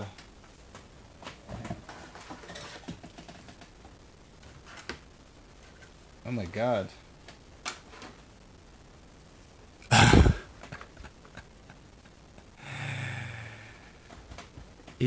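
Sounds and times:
man sighing: 9.9s - 10.5s, 12.6s - 14.0s.

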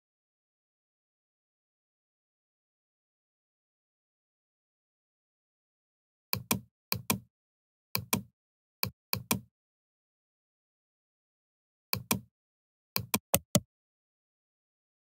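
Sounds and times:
computer mouse button clicks: 6.4s - 7.2s, 9.2s - 9.5s, 13.0s - 13.6s.

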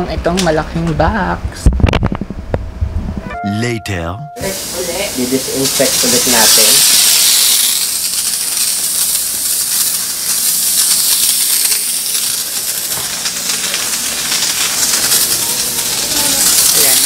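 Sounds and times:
mist sprayer hissing: 4.4s - 8.1s.

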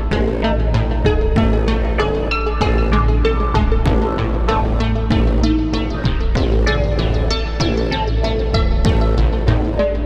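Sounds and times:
deep sustained synth bass: 0.0s - 10.0s.

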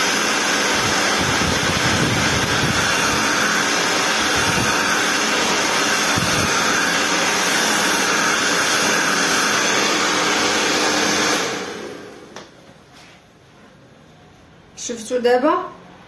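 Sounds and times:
hair dryer blowing: 0.0s - 12.6s
hair dryer winding down: 0.0s - 12.6s.

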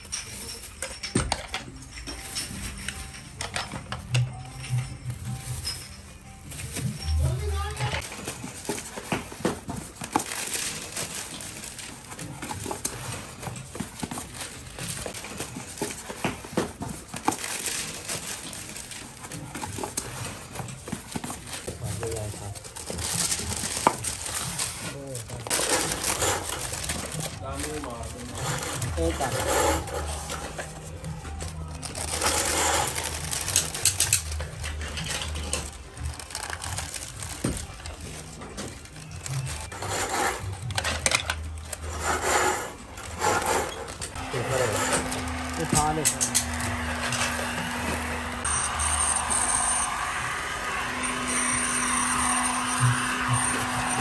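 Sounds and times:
plastic wrapping rustling: 0.0s - 54.0s
plastic bags crinkling: 4.6s - 39.8s, 42.8s - 50.0s.

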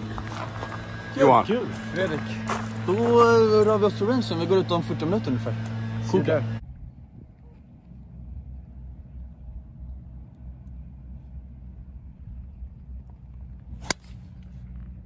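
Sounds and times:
wind rumble on microphone: 6.6s - 10.2s, 11.5s - 15.0s
golf club striking ball: 13.8s - 14.2s.

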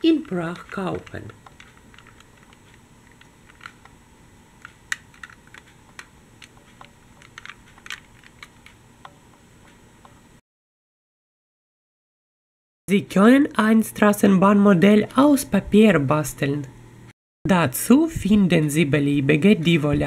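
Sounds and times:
toy vehicles clicking in plastic box: 7.2s - 8.8s.

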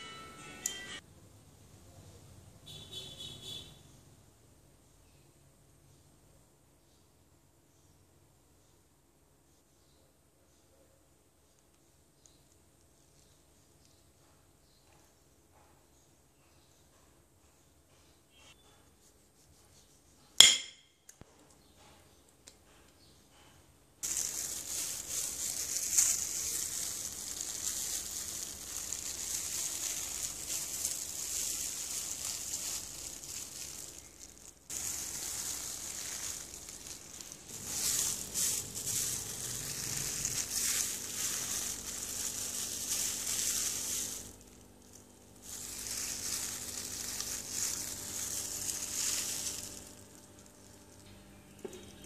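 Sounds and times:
plastic glove crinkling: 24.0s - 51.8s.

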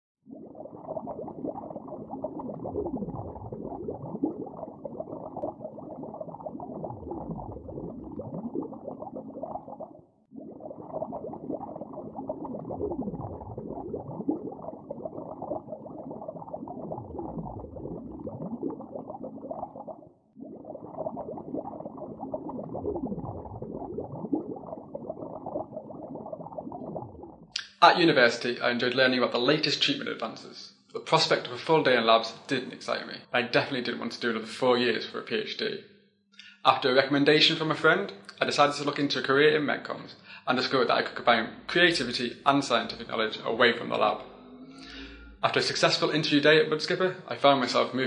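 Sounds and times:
underwater bubbling: 0.2s - 27.6s.

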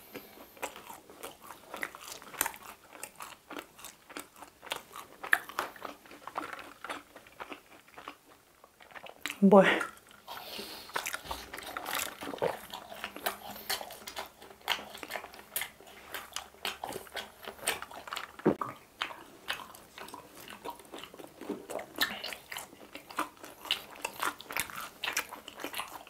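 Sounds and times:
crunchy snacks being chewed: 0.0s - 26.0s.

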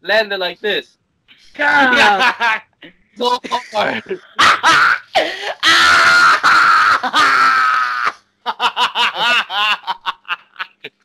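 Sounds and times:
bursts of laughter: 1.9s - 2.5s, 3.5s - 10.9s
man screaming: 4.6s - 8.2s.

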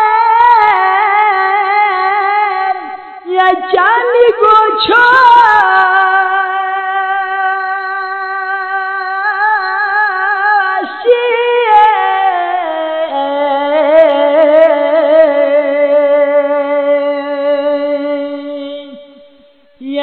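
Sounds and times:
person singing long wavering note: 5.0s - 19.2s.

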